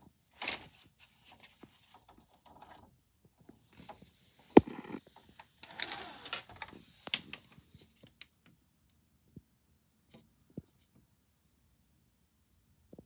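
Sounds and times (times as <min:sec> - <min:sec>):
phone rustling: 0:03.8 - 0:08.0.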